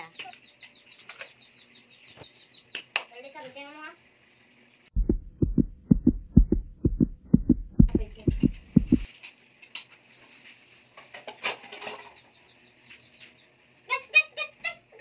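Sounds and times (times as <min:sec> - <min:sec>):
heartbeat thumps: 0:04.9 - 0:09.1.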